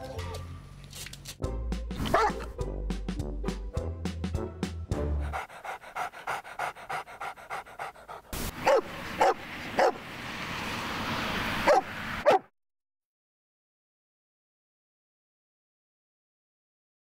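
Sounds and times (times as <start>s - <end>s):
dog barking: 2.0s - 2.5s, 7.8s - 10.0s, 11.6s - 12.5s
dog panting: 5.0s - 10.0s
hiss: 8.1s - 8.6s.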